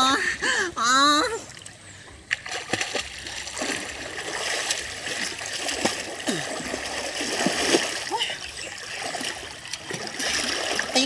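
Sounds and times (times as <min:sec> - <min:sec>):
water splashing and sloshing: 0:01.3 - 0:11.0
water gurgles: 0:02.4 - 0:11.0.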